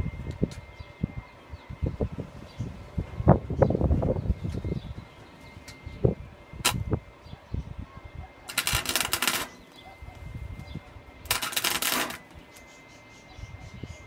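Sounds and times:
welder arc crackling: 8.5s - 12.6s.

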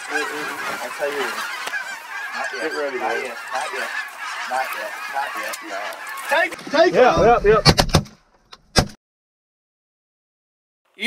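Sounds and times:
geese honking: 0.0s - 7.3s.

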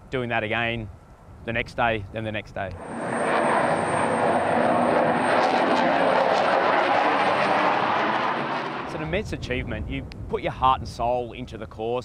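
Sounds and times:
jet engines flying low past: 2.7s - 10.0s
thin high jet whine: 2.8s - 9.6s.

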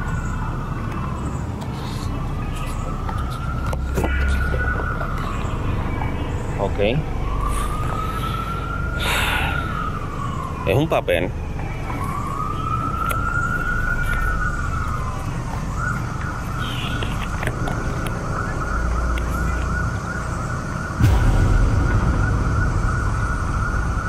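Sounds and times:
emergency vehicle siren: 0.0s - 24.0s
steady low rumble: 20.3s - 24.0s.

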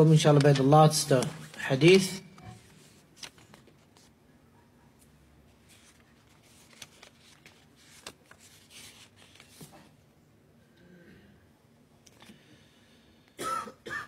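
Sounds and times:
paper rustling: 0.3s - 4.1s, 5.5s - 9.9s.

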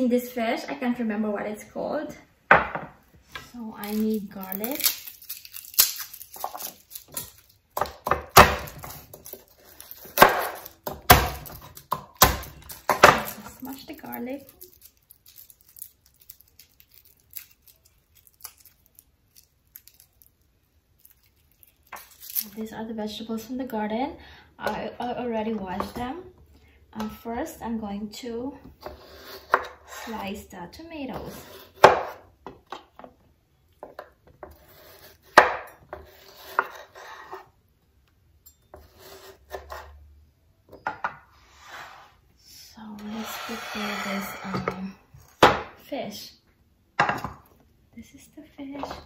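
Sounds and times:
garlic skin crackling as peeled: 3.8s - 7.8s, 8.6s - 22.8s.

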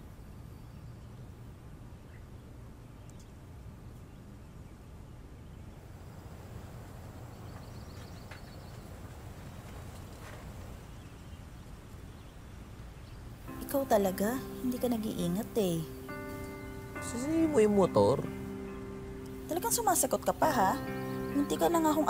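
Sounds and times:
faint chirping: 0.0s - 22.0s
steady low rumble: 5.6s - 22.0s.

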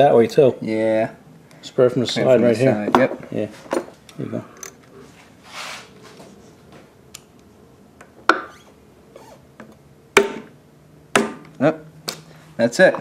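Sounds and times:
hammer striking metal punch: 10.2s - 10.5s, 11.1s - 11.5s.

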